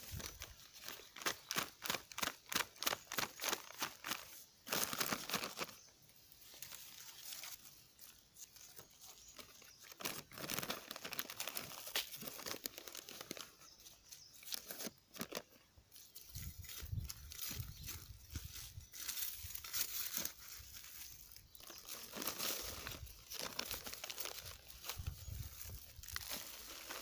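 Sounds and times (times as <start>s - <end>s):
plastic bags crinkling: 0.0s - 5.8s, 9.4s - 13.7s, 18.3s - 27.0s
soil crunching: 0.0s - 27.0s.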